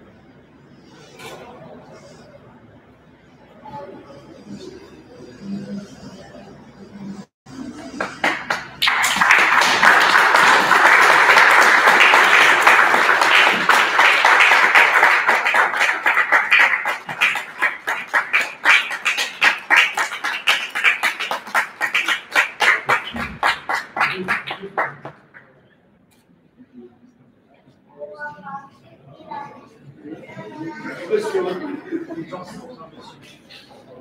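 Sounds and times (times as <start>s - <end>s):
audience applauding: 7.6s - 25.4s.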